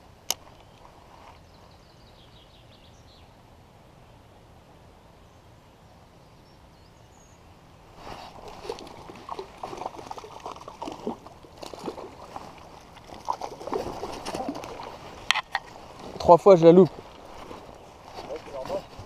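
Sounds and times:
low river flow: 0.0s - 19.0s
fish splashing at surface: 8.3s - 15.0s.

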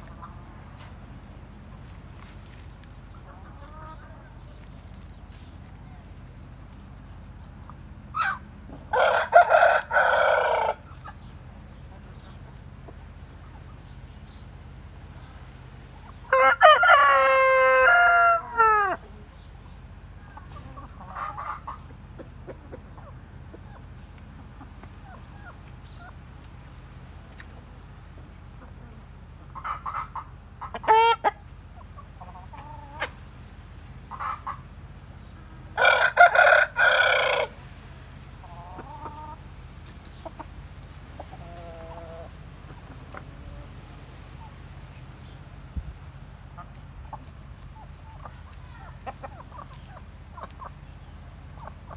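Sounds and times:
chickens clucking: 0.0s - 51.9s
chickens squawking: 0.0s - 51.9s
rooster crowing: 8.2s - 10.8s, 16.2s - 19.1s, 35.8s - 37.6s.

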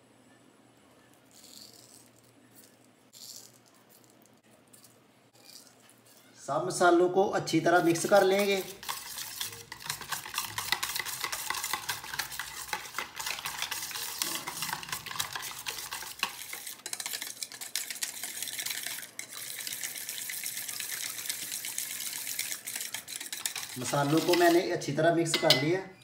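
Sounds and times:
wire whisk scraping metal bowl: 7.6s - 25.7s.

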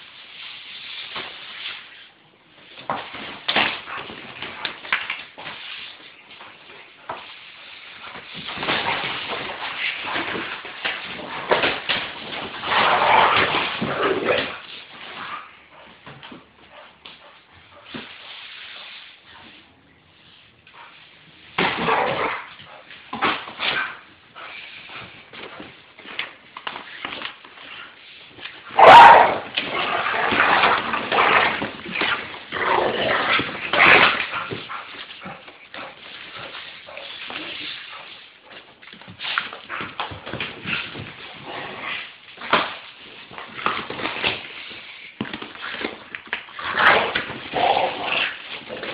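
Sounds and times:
dog barking and whining: 28.7s - 30.2s.

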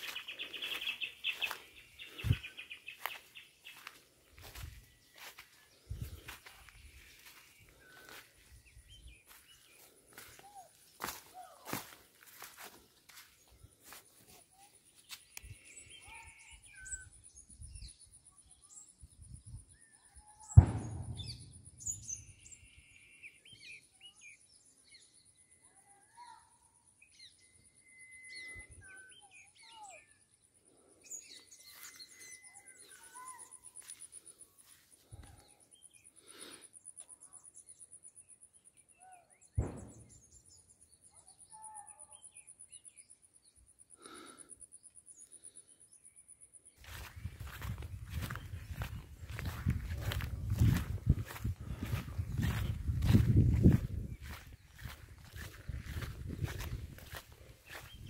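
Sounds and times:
birds chirping: 0.0s - 18.0s, 46.8s - 58.0s
gunshots with rumbling echo: 20.6s - 21.5s.

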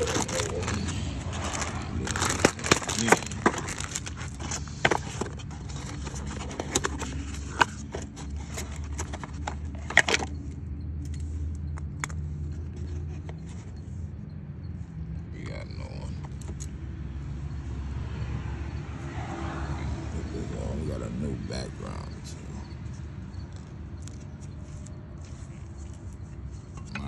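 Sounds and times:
cardboard and plastic packaging rustling: 0.0s - 10.6s.

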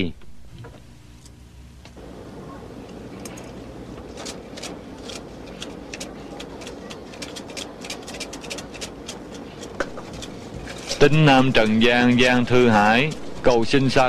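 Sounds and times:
bamboo sticks rattling in cup: 4.1s - 14.0s.

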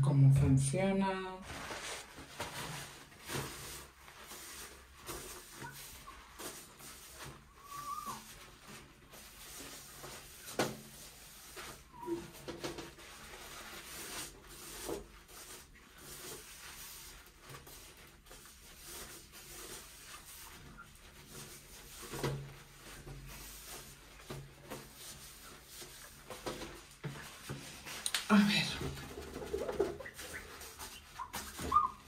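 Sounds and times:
paper towel rubbing on glass: 1.4s - 28.0s, 28.7s - 32.0s.

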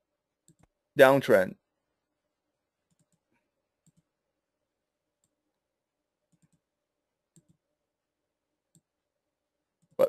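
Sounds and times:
computer mouse clicks: 0.4s - 0.8s, 2.8s - 4.1s, 6.3s - 6.7s, 7.3s - 7.6s.

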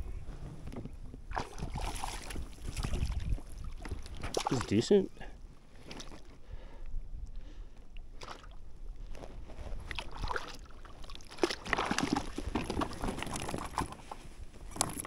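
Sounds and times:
wind rumble on microphone: 0.0s - 4.5s
water splashing and sloshing: 0.8s - 6.4s, 7.9s - 15.0s.

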